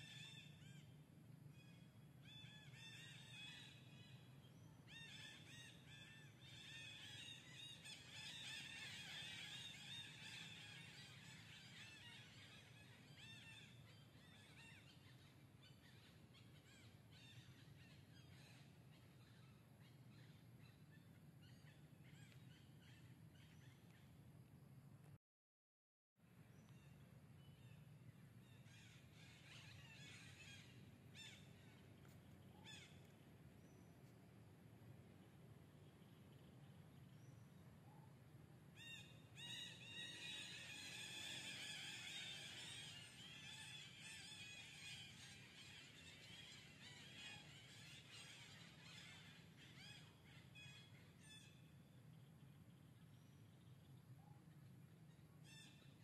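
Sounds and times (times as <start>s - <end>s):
low steady hum: 0.0s - 25.2s, 26.2s - 56.0s
faint birds chirping: 26.3s - 56.0s
downward-sweeping animal calls: 38.8s - 51.5s.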